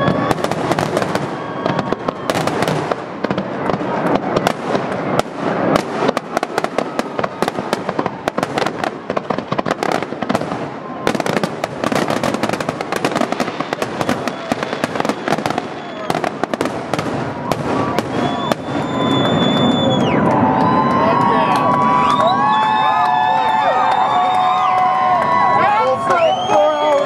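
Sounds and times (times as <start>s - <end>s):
firework shells booming: 0.0s - 19.9s
firework crackling: 0.0s - 25.1s.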